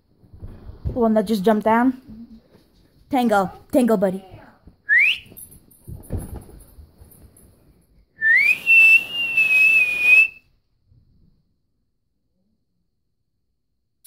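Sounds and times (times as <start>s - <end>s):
person whistling: 4.9s - 5.4s, 8.2s - 10.4s.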